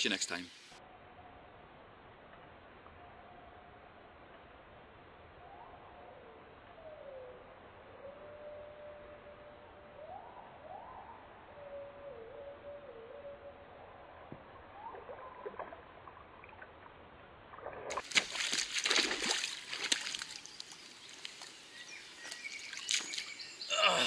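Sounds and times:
water sloshing and splashing: 14.9s - 23.5s
person falling into water: 17.6s - 20.6s, 22.7s - 24.0s.

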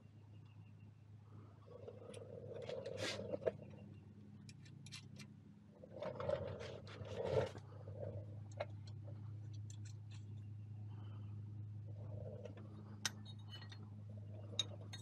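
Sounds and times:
steady low hum: 0.0s - 15.0s
metal clicks and clinks: 13.0s - 15.0s.

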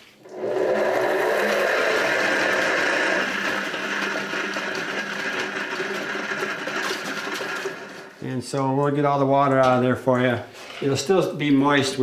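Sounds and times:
salad spinner motor whir: 0.3s - 8.2s.

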